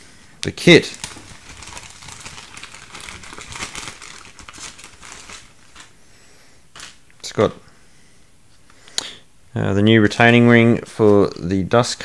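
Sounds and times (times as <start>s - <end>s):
plastic bag crinkling: 0.6s - 6.0s, 6.7s - 7.0s.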